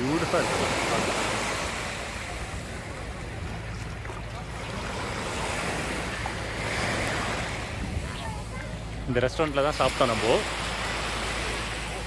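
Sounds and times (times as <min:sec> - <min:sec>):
small waves washing on beach: 0:00.0 - 0:12.0
wind rumbling on microphone: 0:01.3 - 0:09.2.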